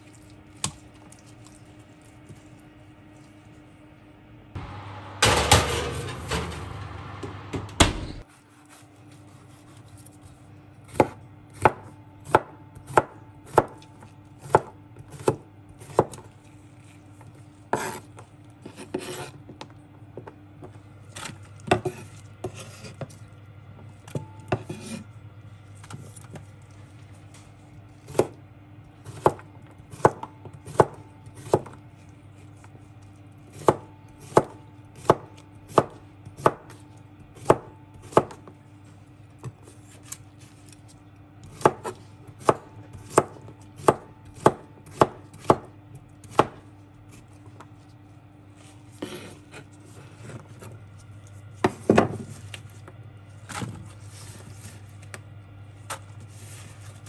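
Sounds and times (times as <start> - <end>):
scraping on cutting board: 17.7 - 19.4, 48.9 - 50.5
knife slicing cucumber: 17.8 - 19.4.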